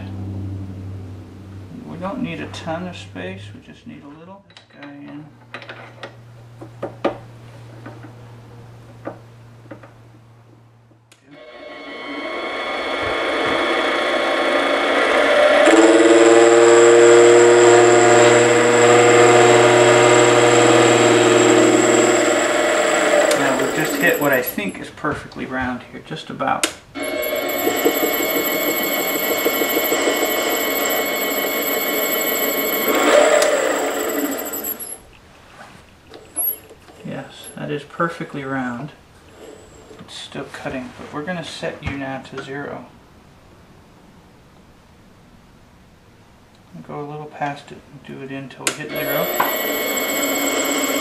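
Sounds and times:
lathe motor whining: 0:11.3 - 0:24.8, 0:27.0 - 0:35.0, 0:48.9 - 0:51.0
lathe click: 0:17.7 - 0:24.7, 0:26.6 - 0:34.9, 0:48.9 - 0:51.0.

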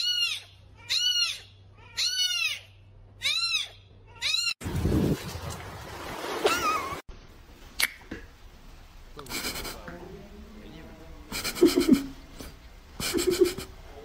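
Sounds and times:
cat meowing: 0:00.0 - 0:04.6
wavering animal cry: 0:00.0 - 0:04.6.

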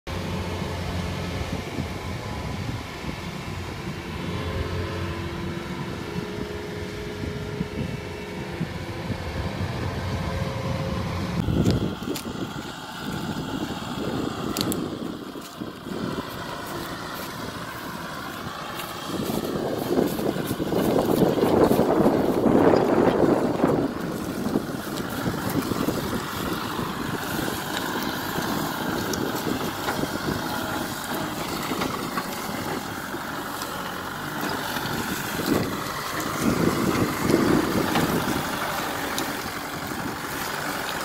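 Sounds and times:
combine harvester engine running: 0:00.1 - 0:41.0
tractor engine running: 0:00.1 - 0:41.0
wind buffeting microphone: 0:00.1 - 0:41.0.

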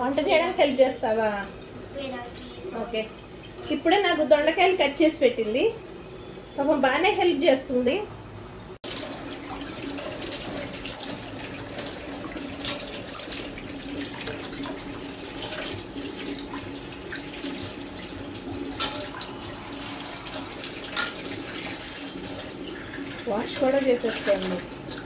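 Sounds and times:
tap running into metal sink: 0:18.5 - 0:19.3.

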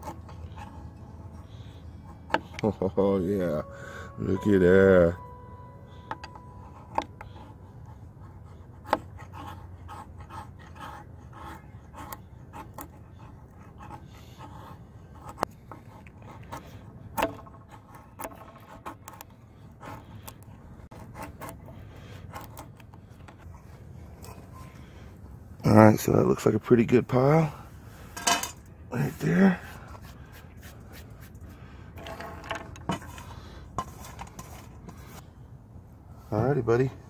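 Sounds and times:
knife shaving wood: 0:00.0 - 0:03.6, 0:06.5 - 0:24.7, 0:29.0 - 0:32.2.

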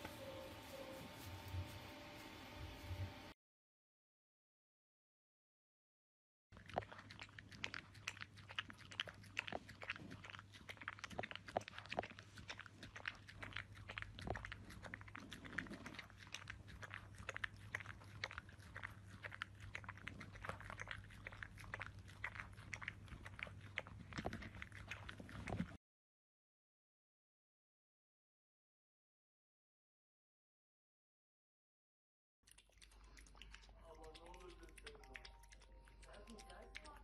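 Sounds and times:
puppy chewing wet food: 0:00.0 - 0:03.1, 0:06.6 - 0:25.8, 0:32.5 - 0:37.0
faint low hum: 0:00.0 - 0:03.4, 0:32.5 - 0:37.0.

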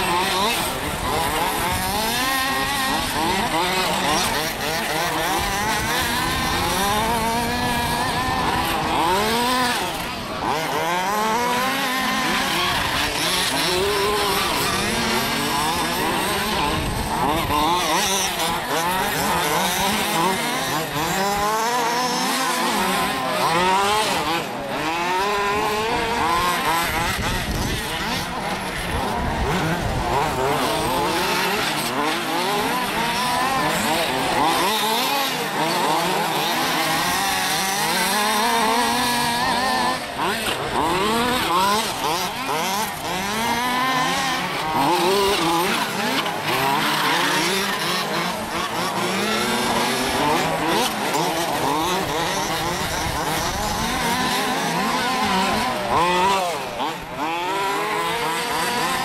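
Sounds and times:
rc car engines revving: 0:00.0 - 0:59.0.

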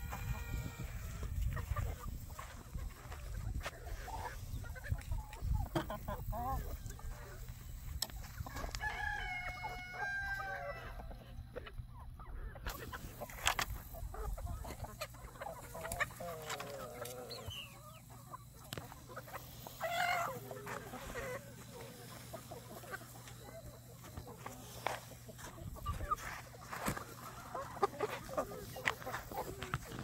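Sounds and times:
loud high chicken call: 0:00.0 - 0:01.4, 0:08.5 - 0:11.0
chickens clucking: 0:00.0 - 0:30.0.

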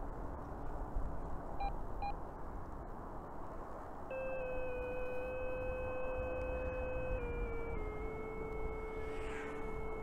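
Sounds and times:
wind rumbling on microphone: 0:00.0 - 0:10.0
short electronic beeps: 0:04.1 - 0:10.0
steady electronic tone: 0:04.1 - 0:10.0.

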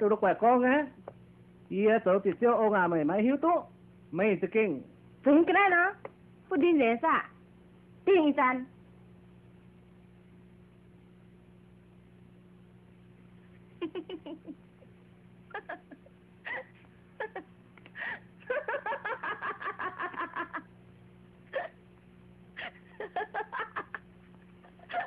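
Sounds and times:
person laughing: 0:13.8 - 0:14.7, 0:15.5 - 0:20.7, 0:21.5 - 0:21.8, 0:22.6 - 0:25.0.

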